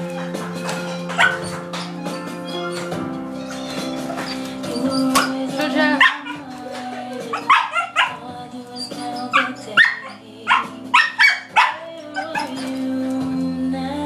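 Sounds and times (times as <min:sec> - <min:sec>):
song on a radio: 0:00.0 - 0:14.0
dog barking: 0:01.1 - 0:02.0, 0:06.0 - 0:06.5, 0:07.2 - 0:08.2, 0:09.0 - 0:12.7.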